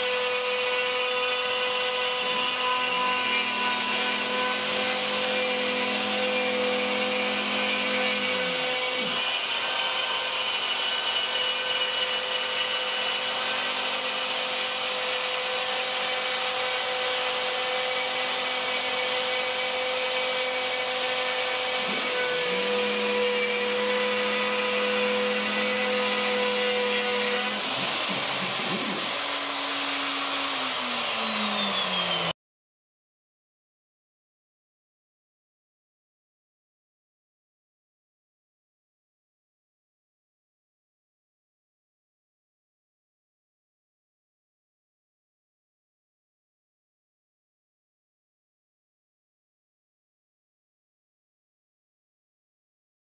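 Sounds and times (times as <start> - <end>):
router high whine: 0.0 - 32.4.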